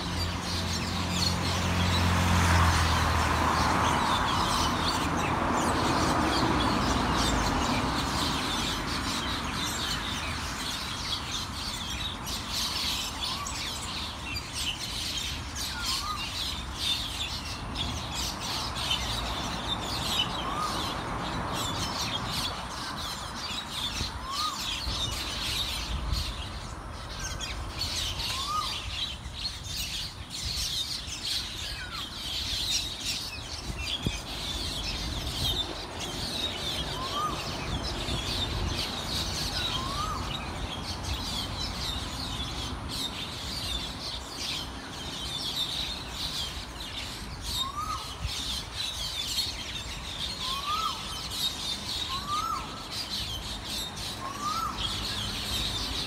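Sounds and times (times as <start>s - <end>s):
birds chirping: 0.0s - 56.0s
cuckoo calling: 39.5s - 40.5s, 50.4s - 51.3s, 52.0s - 52.9s, 54.2s - 55.0s.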